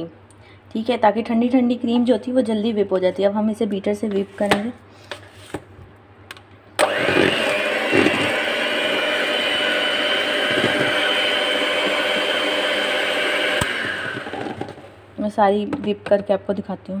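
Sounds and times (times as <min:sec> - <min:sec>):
electric mixer whine: 0:06.8 - 0:15.0.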